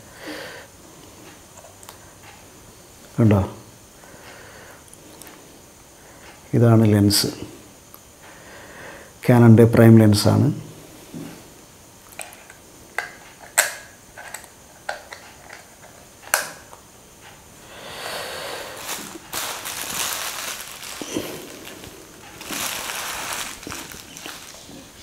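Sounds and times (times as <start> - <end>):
plastic bag crinkling: 18.7 - 25.0.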